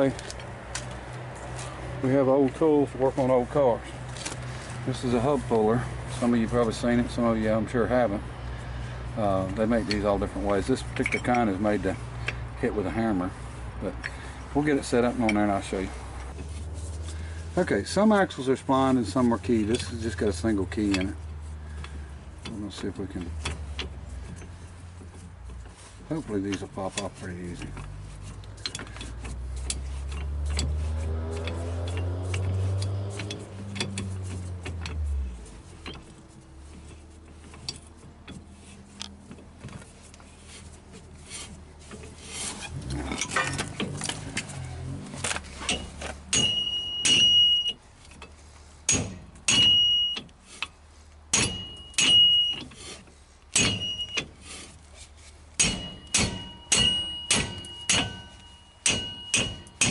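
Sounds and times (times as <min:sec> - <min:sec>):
clicks of tool handling: 0:00.0 - 0:01.8, 0:02.4 - 0:04.8, 0:09.4 - 0:12.5, 0:19.1 - 0:59.9
vehicle engine: 0:00.0 - 0:59.9
hammer striking steel puller: 0:28.6 - 0:35.0, 0:45.6 - 0:47.8, 0:48.9 - 0:50.3, 0:51.3 - 0:54.6, 0:55.6 - 0:59.9.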